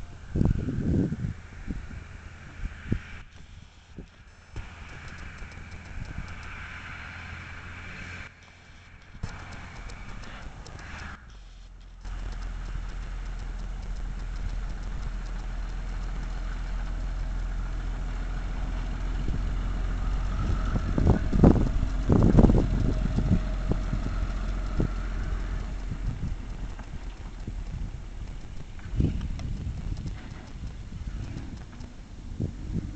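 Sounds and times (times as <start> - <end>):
truck engine driving past: 4.2 - 29.4.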